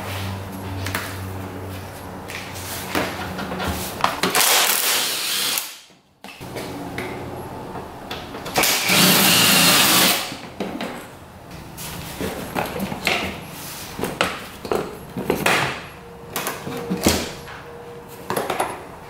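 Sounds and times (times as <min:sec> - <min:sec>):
small power tool running: 0:08.7 - 0:10.3.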